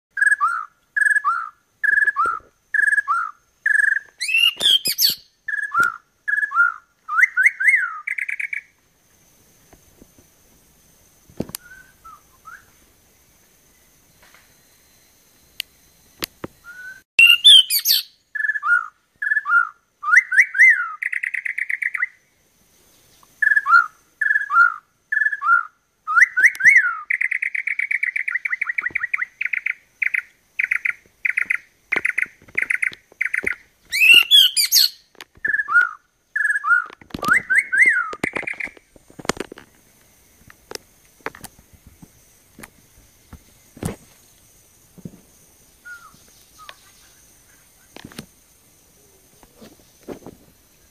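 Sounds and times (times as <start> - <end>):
bird singing whistled phrases: 0.2 - 8.7, 11.6 - 12.8, 16.6 - 22.2, 23.4 - 38.6, 45.8 - 47.2.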